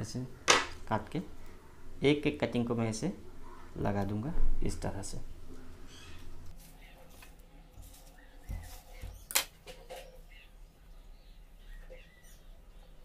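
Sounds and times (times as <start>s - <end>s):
faint bird chirps: 5.9s - 7.1s, 8.0s - 13.0s.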